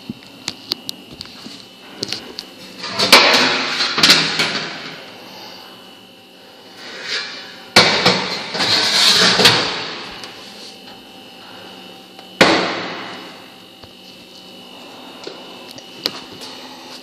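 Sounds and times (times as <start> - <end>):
metal tray scraping on oven runners: 8.1 - 9.8.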